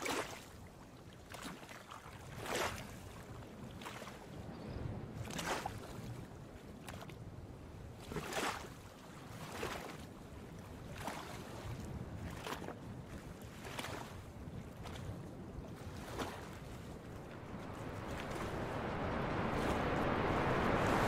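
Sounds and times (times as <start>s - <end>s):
water lapping against dock: 0.0s - 4.4s, 5.2s - 21.0s
low steady rumble: 17.0s - 21.0s.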